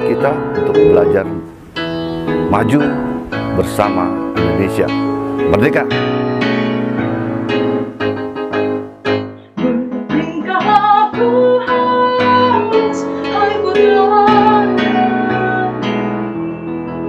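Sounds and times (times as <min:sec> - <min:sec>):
piano playing chords: 0:00.0 - 0:17.0
young woman singing: 0:09.5 - 0:16.2.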